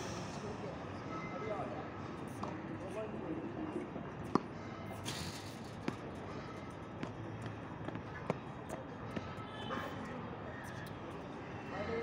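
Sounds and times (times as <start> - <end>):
tennis ball bouncing on court: 2.3 - 2.6, 7.0 - 8.4.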